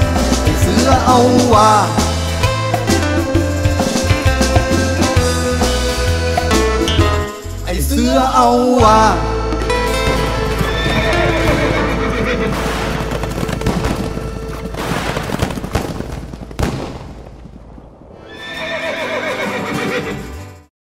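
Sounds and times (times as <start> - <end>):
music: 0.0 - 15.7, 18.5 - 20.7
horse whinnying: 10.0 - 14.5, 18.2 - 20.3
fireworks crackling: 12.4 - 18.2.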